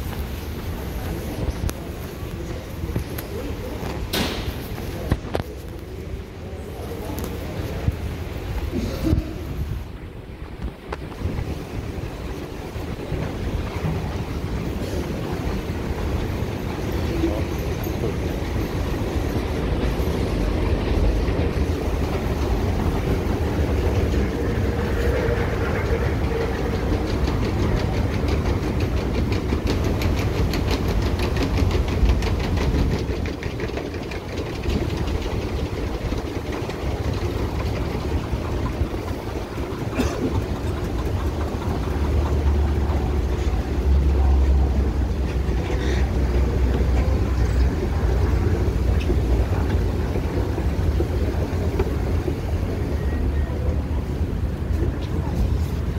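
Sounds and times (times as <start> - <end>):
escalator low rumble: 0.0 - 55.9
rapid even clicking: 17.0 - 52.1.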